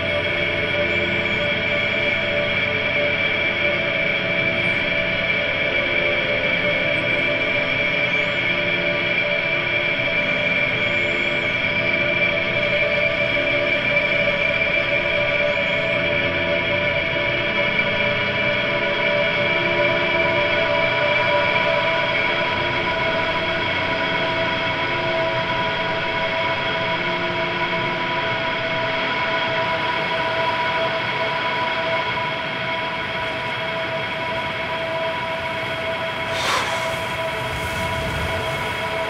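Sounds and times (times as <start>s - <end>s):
ambient drone chord: 32.0s - 39.0s
short sharp noise: 36.3s - 39.0s.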